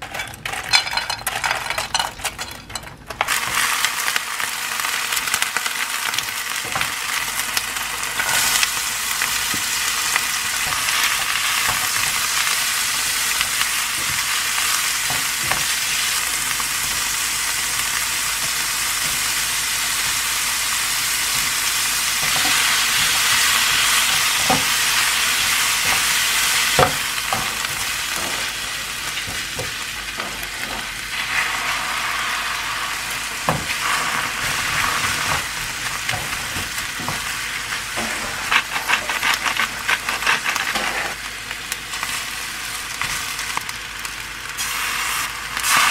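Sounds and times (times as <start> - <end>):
oil sizzling in a frying pan: 3.1 - 45.9
spatula tapping and scraping pan: 22.2 - 24.9.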